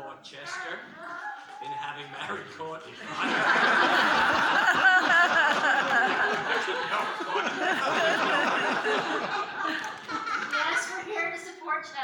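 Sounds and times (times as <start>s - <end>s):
group of people laughing: 2.9s - 10.8s.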